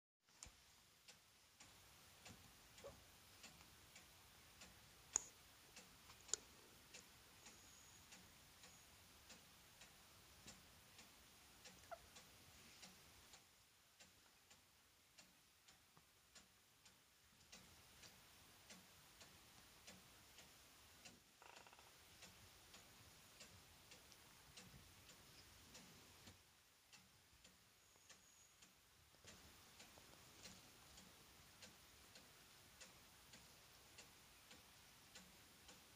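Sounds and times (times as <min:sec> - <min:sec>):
faint even ticking: 0:00.4 - 0:35.9
sharp clicks: 0:18.7 - 0:28.2.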